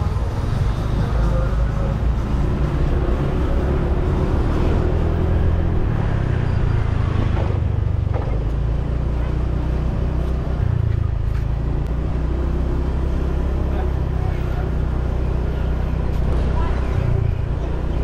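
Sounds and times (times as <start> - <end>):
motorbike engine rumble: 0.0 - 18.0.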